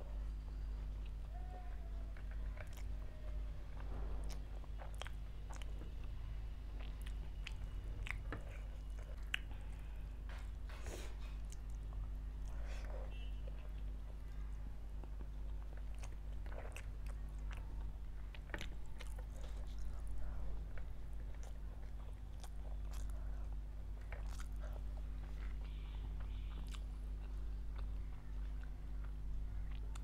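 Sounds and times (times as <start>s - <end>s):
steady low hum: 0.0s - 30.0s
person chewing and biting: 3.8s - 6.2s, 6.8s - 12.7s, 15.0s - 30.0s.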